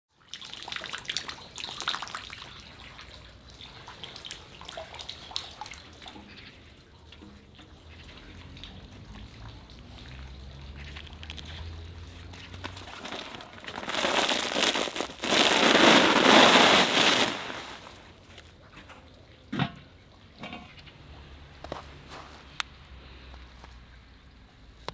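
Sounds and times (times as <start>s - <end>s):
plastic sheet rustling and crackling: 11.0s - 18.4s.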